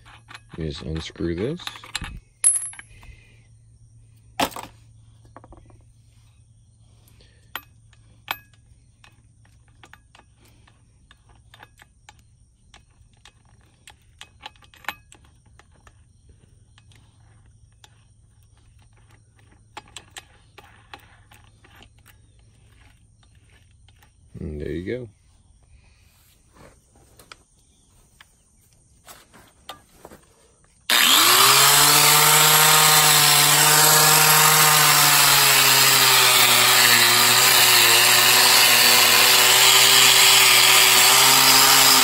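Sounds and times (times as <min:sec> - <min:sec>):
metallic clicks and clinks: 0:00.0 - 0:03.1, 0:07.5 - 0:16.0.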